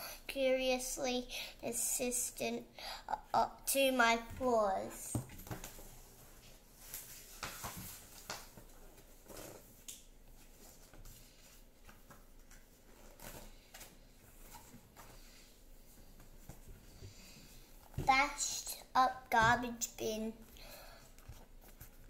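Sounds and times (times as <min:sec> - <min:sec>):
paper pages rustling and turning: 0:05.1 - 0:16.8, 0:21.1 - 0:22.0.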